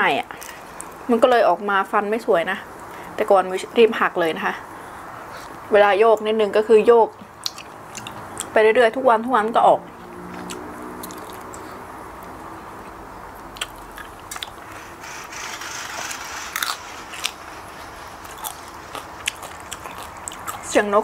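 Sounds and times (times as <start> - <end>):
mouth clicks: 7.4 - 8.5
person chewing and crunching food: 7.4 - 8.5, 10.4 - 11.8, 12.8 - 14.8, 16.4 - 20.8.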